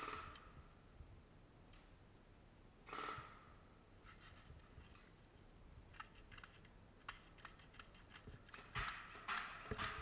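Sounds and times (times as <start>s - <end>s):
faint clicks and taps: 4.1s - 10.0s.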